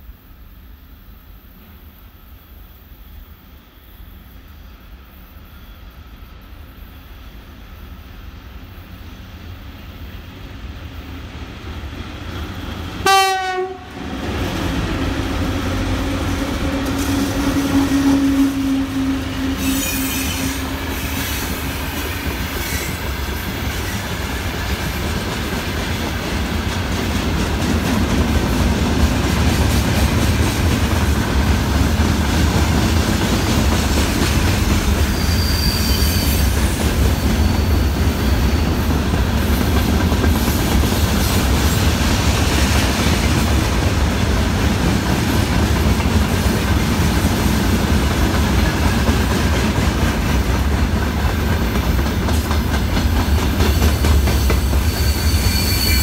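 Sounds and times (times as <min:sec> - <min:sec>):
electric locomotives humming: 0:06.2 - 0:56.0
train horn blast: 0:13.0 - 0:14.2, 0:15.2 - 0:21.5
wheels squealing: 0:35.0 - 0:38.9, 0:54.4 - 0:56.0.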